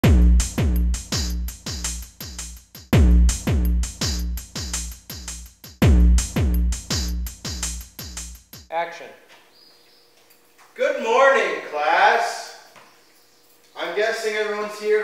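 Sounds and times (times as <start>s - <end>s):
deep kick drums: 0.0s - 8.7s
ticking hi-hats: 0.0s - 8.7s.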